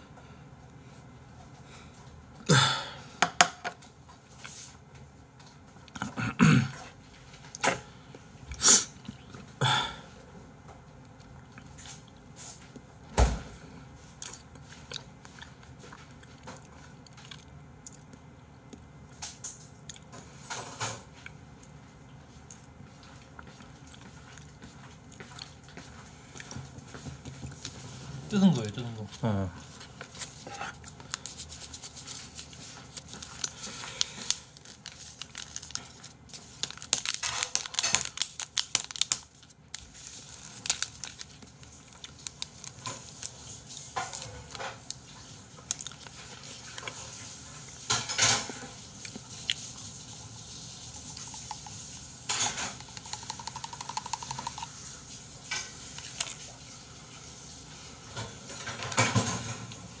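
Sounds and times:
plastic packets crinkling: 0:30.9 - 0:43.4.

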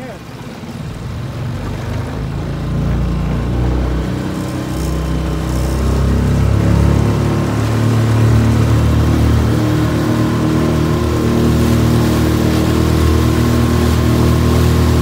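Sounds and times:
outboard motor running: 0:00.0 - 0:15.0
water splashing along hull: 0:00.0 - 0:15.0.

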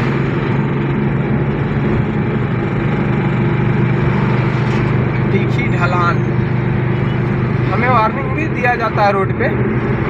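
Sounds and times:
vehicle engine and road noise: 0:00.0 - 0:10.0.

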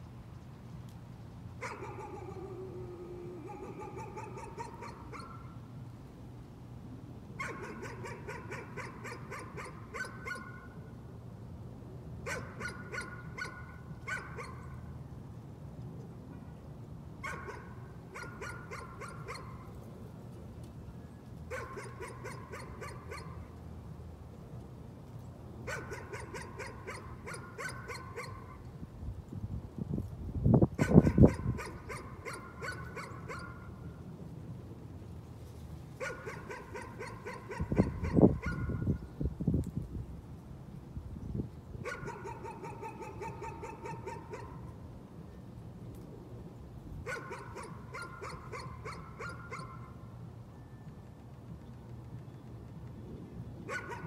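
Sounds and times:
dog barking: 0:01.6 - 0:02.4, 0:03.5 - 0:05.5, 0:07.4 - 0:10.7, 0:12.3 - 0:14.6, 0:17.2 - 0:19.6, 0:21.5 - 0:23.4, 0:25.7 - 0:28.6, 0:30.8 - 0:33.7, 0:36.0 - 0:38.8, 0:41.8 - 0:44.6, 0:47.1 - 0:49.8, 0:53.7 - 0:54.0.

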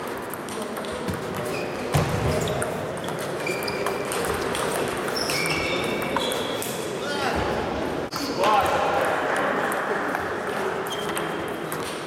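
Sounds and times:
short high-pitched squeaks: 0:05.1 - 0:06.6.

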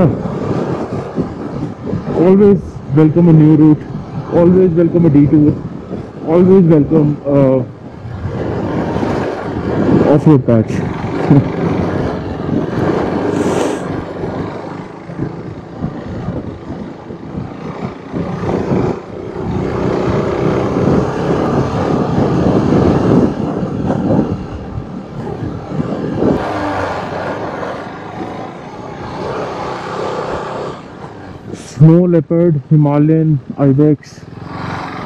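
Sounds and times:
motorcycle engine revving: 0:05.6 - 0:32.1, 0:34.1 - 0:35.0.

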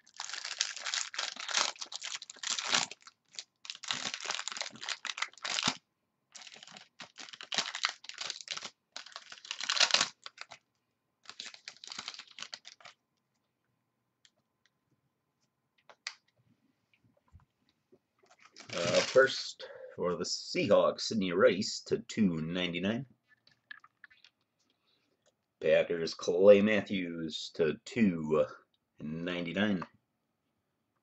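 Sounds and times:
plastic wrapping tearing and crumpling: 0:00.0 - 0:10.6, 0:11.2 - 0:13.0, 0:18.3 - 0:19.4.

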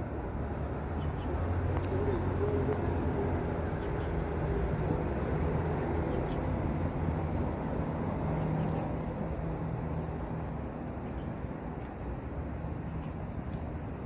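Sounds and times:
vehicle engine humming: 0:00.0 - 0:14.0.

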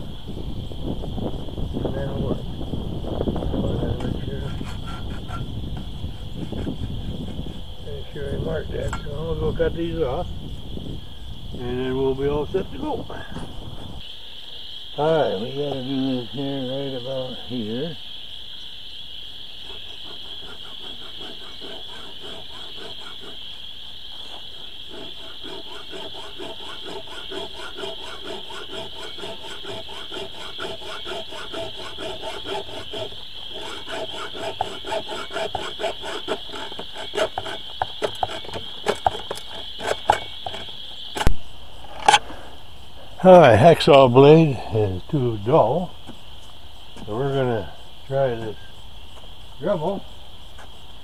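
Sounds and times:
insects chirring: 0:00.0 - 0:51.0
hacksaw cutting metal tube: 0:04.0 - 0:05.5, 0:20.0 - 0:23.4, 0:24.9 - 0:40.6.

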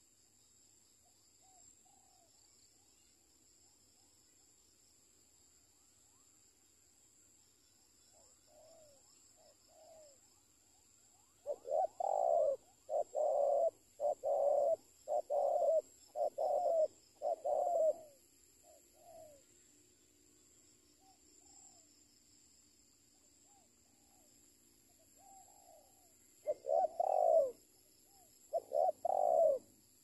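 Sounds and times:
dove cooing: 0:11.4 - 0:19.4, 0:25.2 - 0:29.7.

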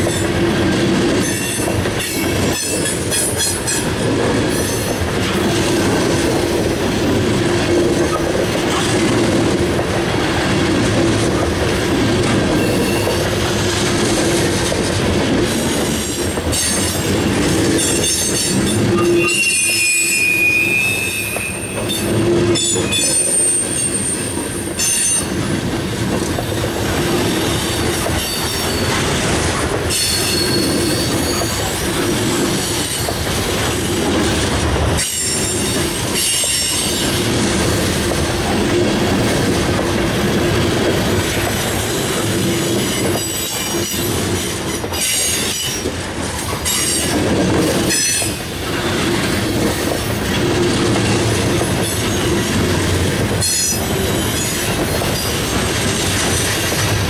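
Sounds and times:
train wheels rumbling: 0:00.0 - 0:57.0
wheel squeal: 0:17.8 - 0:25.3, 0:29.9 - 0:31.8
wheels clacking over rail joints: 0:21.2 - 0:57.0.

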